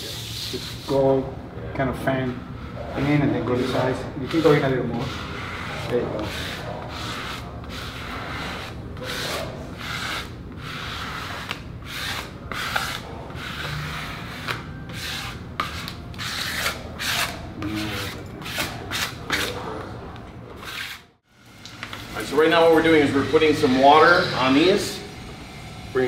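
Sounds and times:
hands rubbing stencil on concrete: 0:03.6 - 0:19.6.

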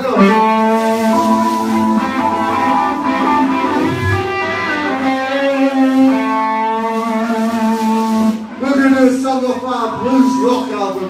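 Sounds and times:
electric guitar held notes: 0:00.0 - 0:08.6
live rock band playing: 0:00.0 - 0:11.0.

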